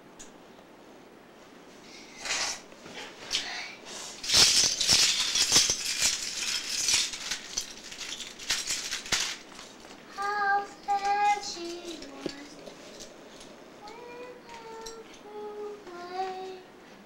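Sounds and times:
plastic bricks clattering: 4.2s - 10.0s
small child's voice: 10.1s - 12.6s, 13.8s - 16.7s.

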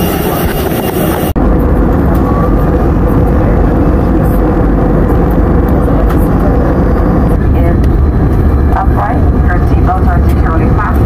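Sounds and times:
airliner cabin engine rumble: 0.0s - 11.0s.

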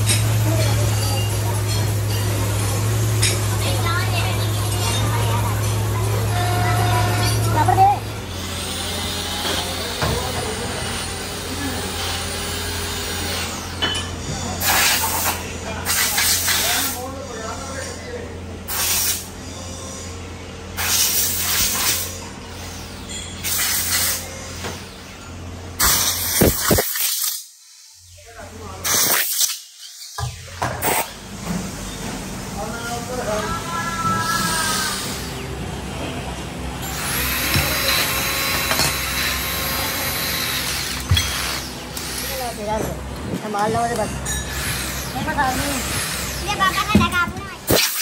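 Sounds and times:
power tool whining: 6.0s - 15.5s, 36.7s - 43.0s, 43.7s - 48.0s
pneumatic screwdriver hissing bursts: 18.7s - 19.3s, 23.4s - 24.2s, 25.8s - 27.5s, 28.8s - 30.2s, 47.7s - 48.0s.

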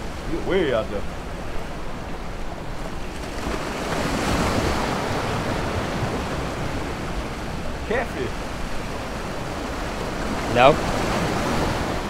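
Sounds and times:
surf washing against rocks: 0.0s - 12.0s
wind buffeting microphone: 0.0s - 12.0s.

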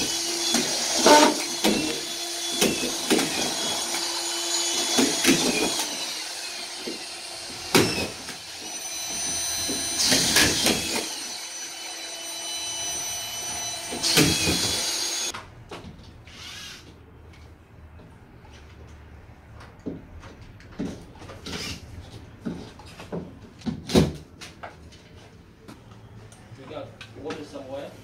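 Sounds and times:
cordless vacuum cleaner running: 8.6s - 15.3s.

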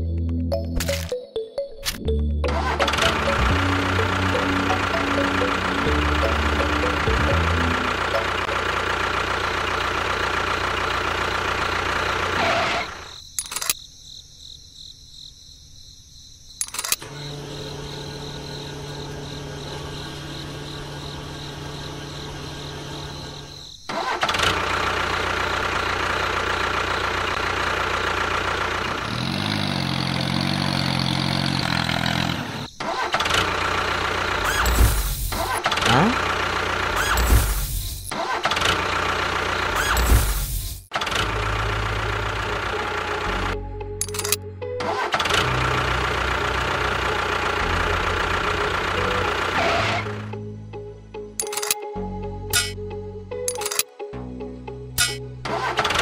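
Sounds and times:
tractor engine running: 1.9s - 13.8s, 16.6s - 50.5s, 55.0s - 56.0s.

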